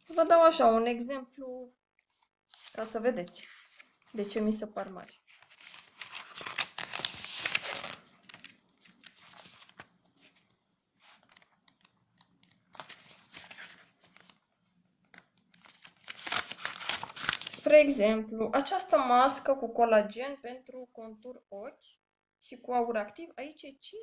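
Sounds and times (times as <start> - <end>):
pages turning and rustling: 2.1 - 14.4, 15.0 - 17.8
paper clicks and taps: 11.2 - 13.0.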